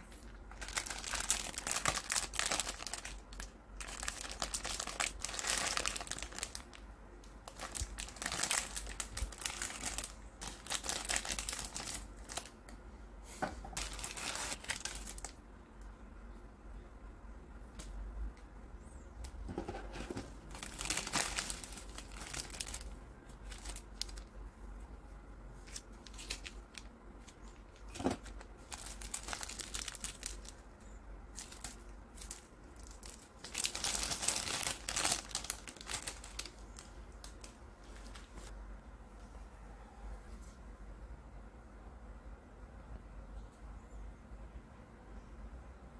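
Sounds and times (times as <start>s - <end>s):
plastic wrapper crinkling: 0.1s - 12.6s, 13.8s - 15.4s, 19.8s - 24.4s, 25.6s - 38.5s.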